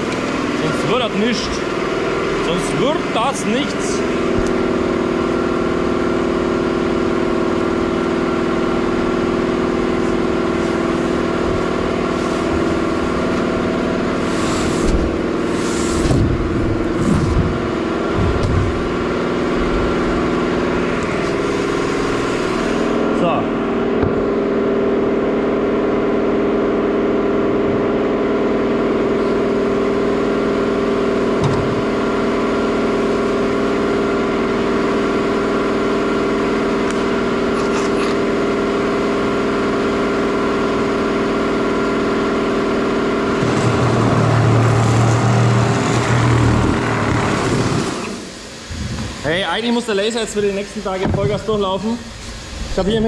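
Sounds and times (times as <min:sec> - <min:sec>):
laser cutter humming: 0:00.0 - 0:24.9
deeper hum: 0:00.0 - 0:39.9, 0:40.6 - 0:53.0.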